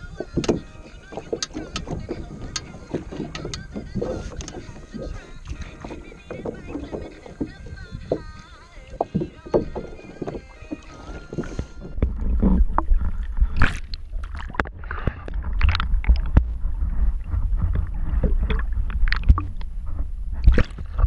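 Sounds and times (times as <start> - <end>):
muffled underwater rushing: 0.0 - 21.0
sharp clicks and knocks: 0.4 - 0.6, 1.3 - 4.7.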